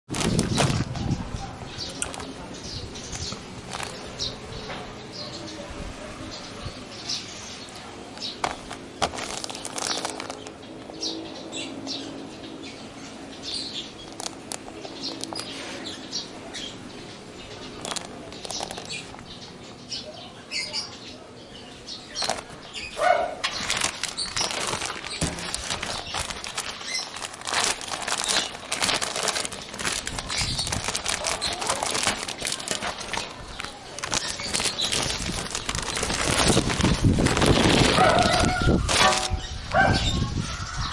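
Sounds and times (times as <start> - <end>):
plastic bag crinkling: 0.1 - 1.3, 3.1 - 4.2, 8.4 - 10.7, 14.0 - 15.7, 17.6 - 19.3, 22.1 - 39.5.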